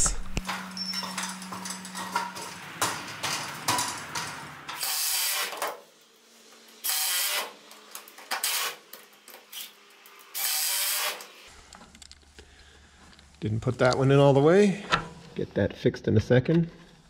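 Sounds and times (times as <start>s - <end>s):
cordless drill driving screws: 9.5s - 11.4s.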